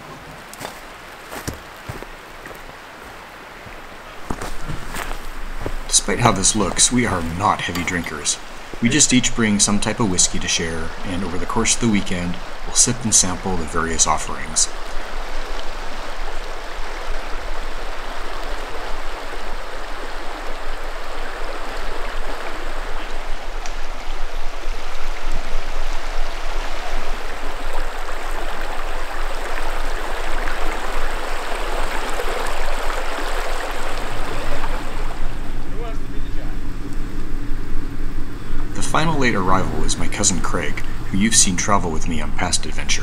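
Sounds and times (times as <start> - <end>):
river running over rocks: 0.0 - 43.0.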